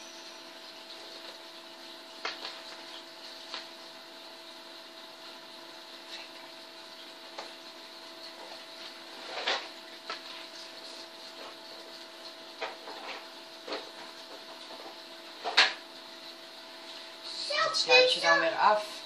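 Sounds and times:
steady hum: 0:00.0 - 0:19.0
paper rustling and clicking: 0:02.2 - 0:03.7.

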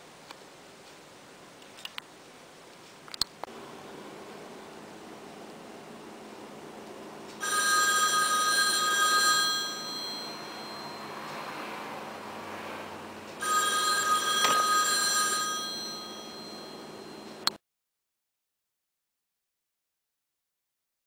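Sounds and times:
telephone bell ringing: 0:07.4 - 0:11.2, 0:13.4 - 0:17.4.

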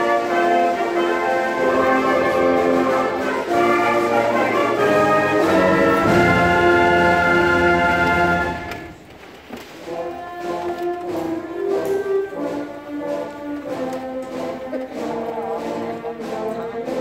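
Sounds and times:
concert band playing chords: 0:00.0 - 0:09.0.

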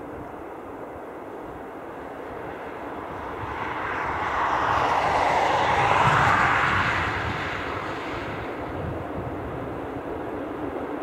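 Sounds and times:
rushing vehicle noise: 0:02.8 - 0:10.4.

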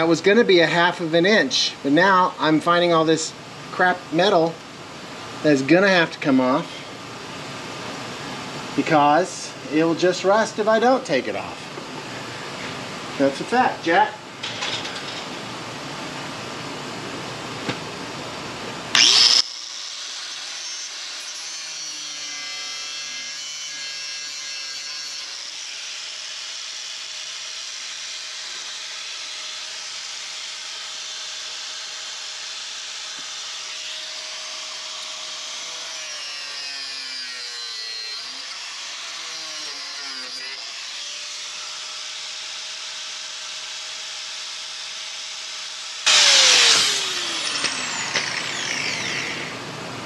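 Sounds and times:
power tool cutting sheet steel: 0:18.9 - 0:49.8.

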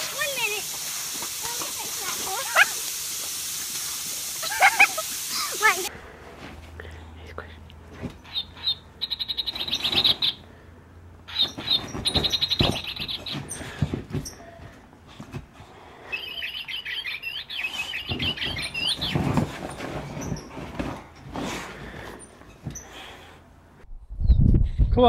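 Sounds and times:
high chirping sounds: 0:08.2 - 0:10.4, 0:11.3 - 0:13.6, 0:16.1 - 0:19.2
squeaky toy squeaks: 0:11.3 - 0:13.5
dog moving on couch thumps: 0:18.1 - 0:21.7.

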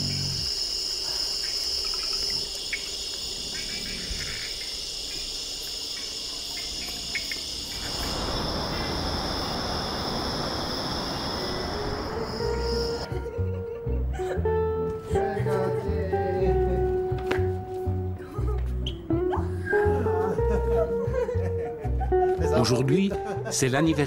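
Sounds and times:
insects shrilling: 0:00.0 - 0:13.1
broad rushing hiss: 0:02.4 - 0:13.1.

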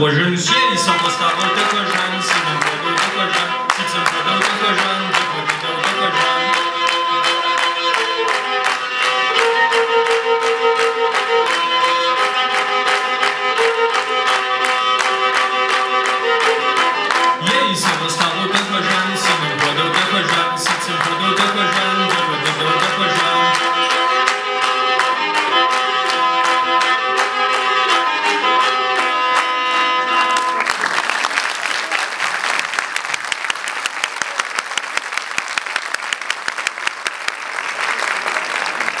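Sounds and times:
bowed fiddle playing a tune: 0:00.0 - 0:31.2
audience applause: 0:00.4 - 0:39.0
steady clicking beat: 0:09.1 - 0:28.9.

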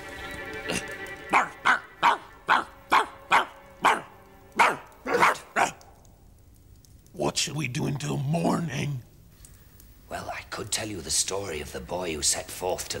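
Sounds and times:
faint background music: 0:00.0 - 0:09.2, 0:10.0 - 0:13.0
dog barking: 0:01.3 - 0:05.8.

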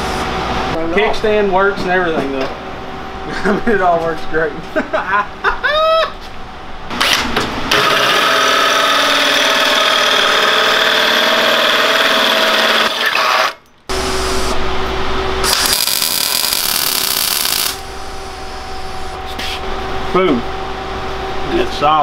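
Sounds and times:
cordless drill running under load: 0:07.7 - 0:14.4
loud hissing machine: 0:07.8 - 0:14.6, 0:15.4 - 0:19.6.

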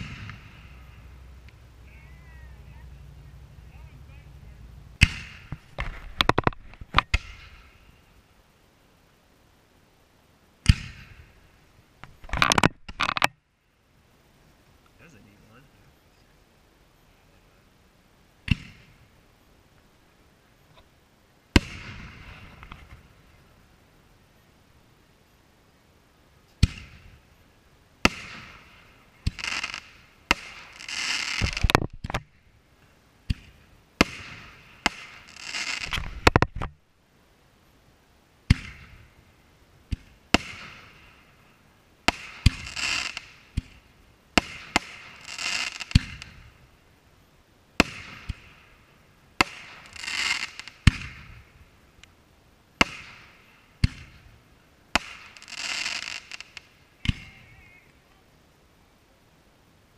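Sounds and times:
firework shells bursting: 0:00.0 - 0:01.9, 0:05.0 - 0:08.0, 0:12.0 - 0:13.3, 0:28.0 - 0:32.4, 0:33.2 - 0:36.7, 0:39.9 - 0:46.6, 0:47.8 - 0:52.1, 0:52.8 - 0:54.3, 0:54.9 - 0:57.4
firework hiss: 0:00.0 - 0:59.1.

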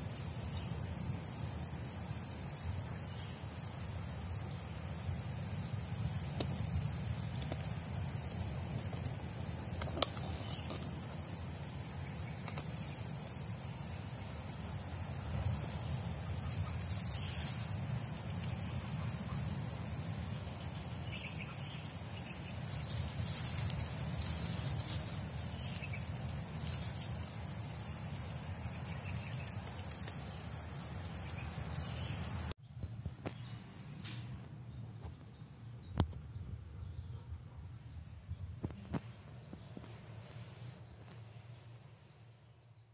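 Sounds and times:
high-pitched insect drone: 0:00.0 - 0:32.6.

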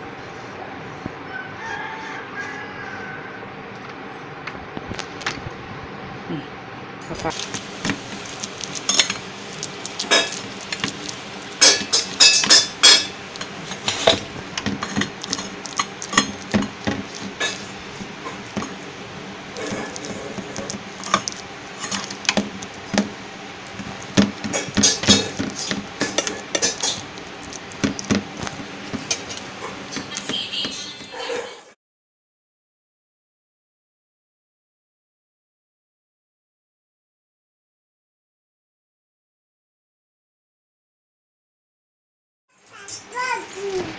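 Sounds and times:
spatula scraping metal tray: 0:10.0 - 0:18.8, 0:19.5 - 0:23.1, 0:23.7 - 0:31.7.

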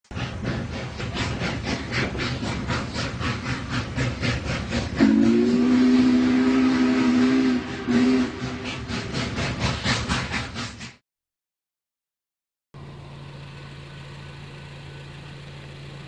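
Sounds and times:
train wheels clacking on rails: 0:00.1 - 0:11.0
train horn blasts: 0:05.0 - 0:08.8.

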